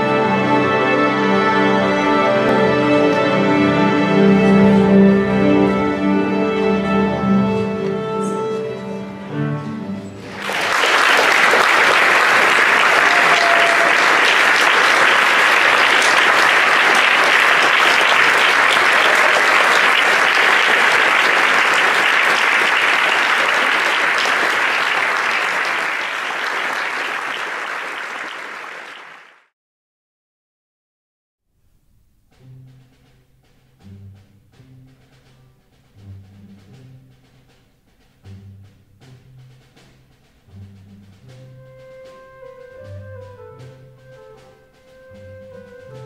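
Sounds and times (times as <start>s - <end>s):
audience applauding: 10.2s - 29.5s.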